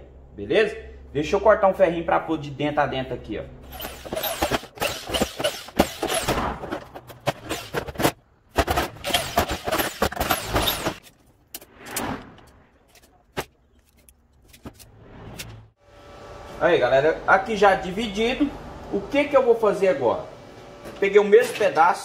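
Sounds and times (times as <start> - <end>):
power drill unscrewing screws: 3.7 - 8.2, 8.9 - 11.3.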